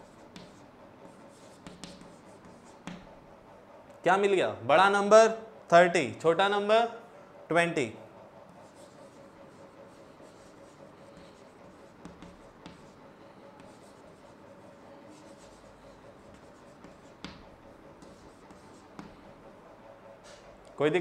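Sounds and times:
chalk scratching on chalkboard: 0:00.0 - 0:03.1, 0:08.5 - 0:19.5
chalk tapping on board: 0:00.0 - 0:03.1, 0:10.2 - 0:14.4, 0:15.1 - 0:19.4.

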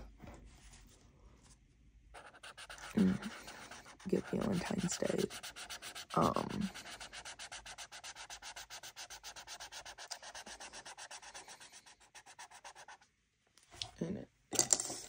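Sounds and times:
marker rubbing on paper: 0:02.2 - 0:13.0.

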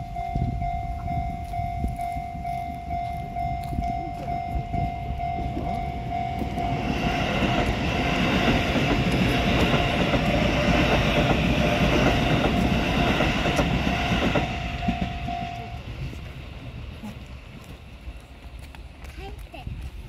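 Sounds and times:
level-crossing bell dinging: 0:00.0 - 0:10.5, 0:12.0 - 0:16.3
train wheels clattering on rails: 0:00.0 - 0:20.0.

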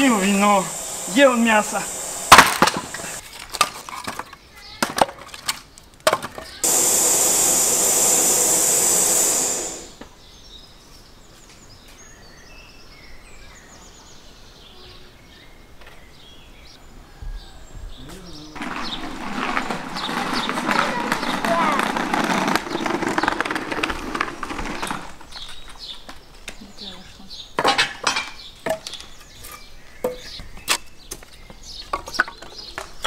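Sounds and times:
loud steady hiss: 0:00.0 - 0:03.2, 0:06.6 - 0:10.1.

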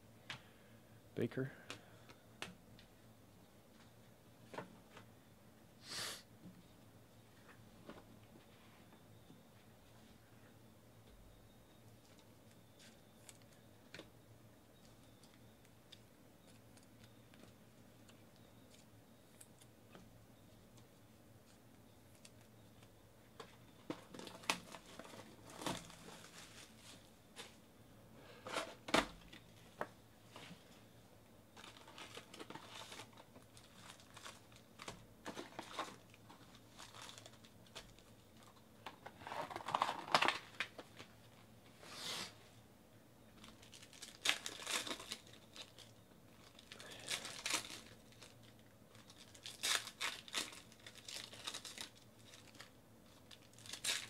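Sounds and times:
wrappers crinkling: 0:24.0 - 0:27.6, 0:31.5 - 0:38.6, 0:43.4 - 0:54.0
card pack wrappers tearing: 0:31.6 - 0:38.1, 0:43.4 - 0:54.0.

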